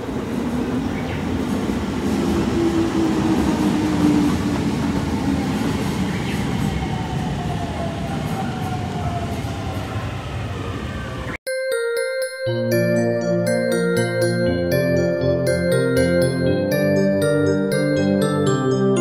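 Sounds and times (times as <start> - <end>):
train wheels rumbling: 0.0 - 11.3.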